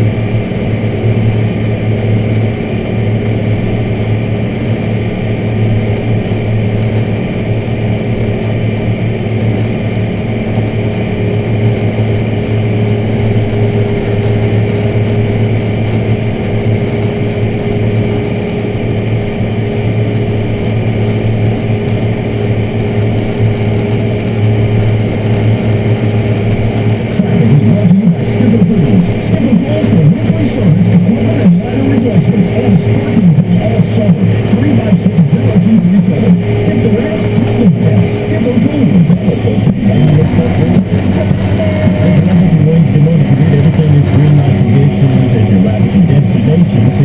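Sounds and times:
diesel tractor engine running: 0.0s - 47.0s.

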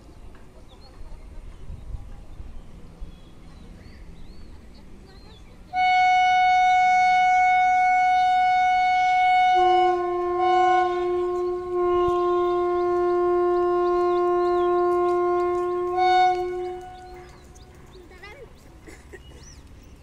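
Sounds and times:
locomotive air horn blast: 5.7s - 17.5s.

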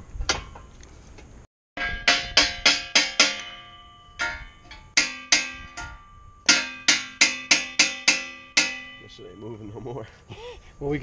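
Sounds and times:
hammer clanging on metal: 1.8s - 9.7s.

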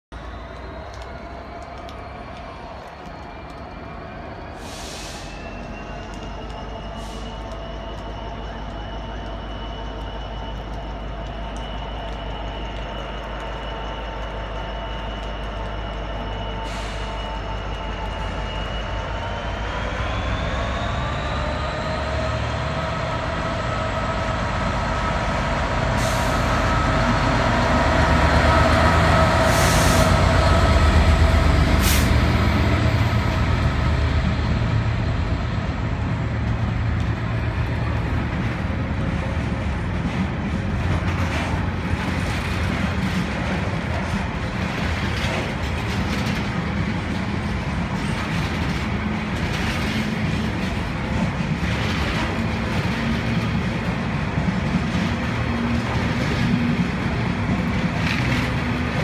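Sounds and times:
diesel locomotive engine drone: 0.0s - 59.0s
brief hisses: 4.6s - 5.6s.

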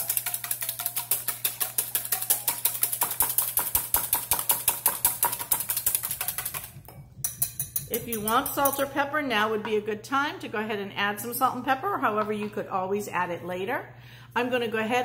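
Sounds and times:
whisk clattering in metal bowl: 0.0s - 9.0s.

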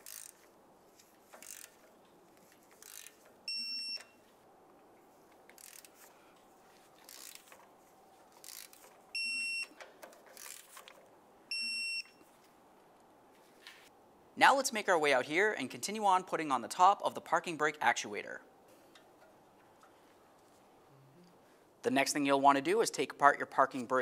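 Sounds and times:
short electronic beeps: 3.5s - 4.2s, 9.2s - 9.8s, 11.5s - 12.2s.

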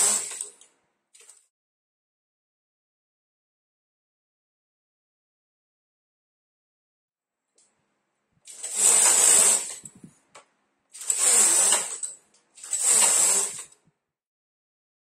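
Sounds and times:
knitting machine carriage hissing: 0.0s - 0.6s, 8.5s - 10.1s, 11.0s - 13.8s.

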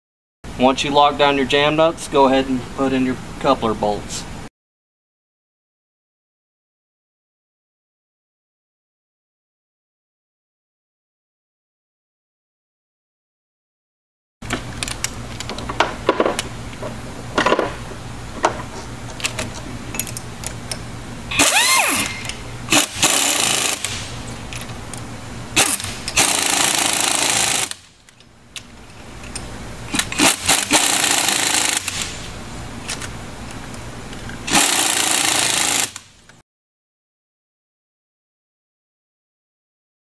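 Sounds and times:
clicks and knocks of tools: 18.4s - 20.8s, 27.7s - 30.6s
pneumatic impact wrench hammering: 21.3s - 24.2s, 25.6s - 27.9s, 29.9s - 32.3s, 34.5s - 36.1s.

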